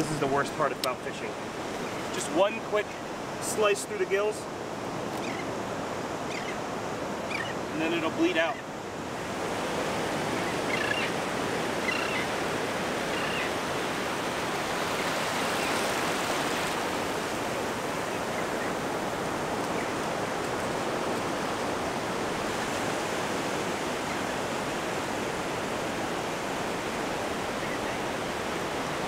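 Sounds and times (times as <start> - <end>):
ocean surf washing up: 0.0 - 29.0.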